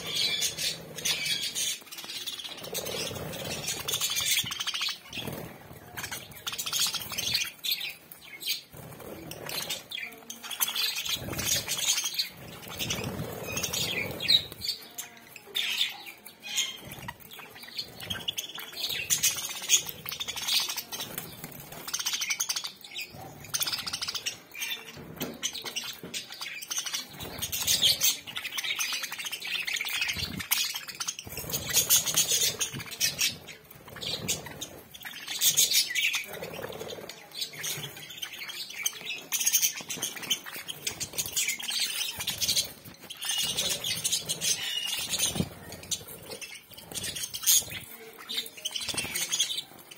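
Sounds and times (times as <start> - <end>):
budgerigars chirping and chattering: 0.0 - 49.9.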